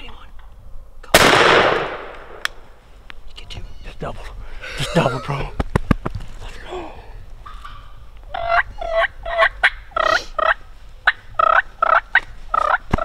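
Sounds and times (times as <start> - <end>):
sharp clicks: 1.2 - 2.6
turkey yelping: 8.3 - 13.0.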